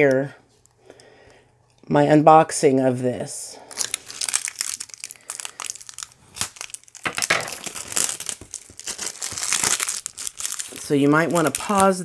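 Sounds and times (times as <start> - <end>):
wrapping crinkling and tearing: 3.6 - 12.0.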